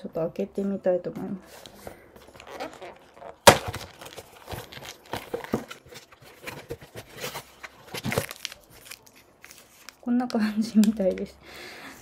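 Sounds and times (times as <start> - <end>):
crinkling wrappers and cardboard taps: 1.6 - 11.3
cardboard box ripping: 2.2 - 9.0.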